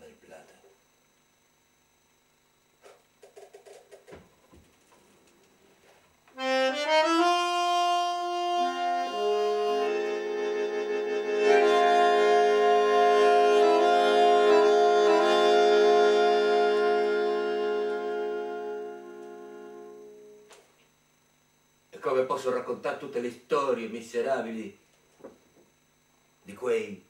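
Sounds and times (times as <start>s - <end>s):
bandoneon chords: 6.3s - 20.6s.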